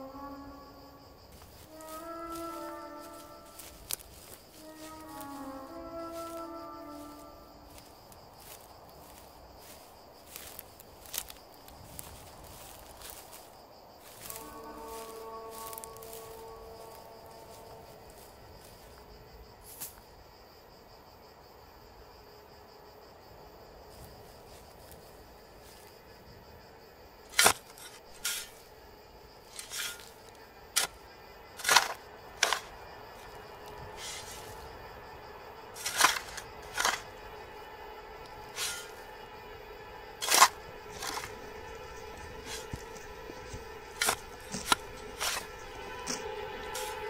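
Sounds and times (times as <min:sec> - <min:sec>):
faint high hum: 0:00.0 - 0:47.0.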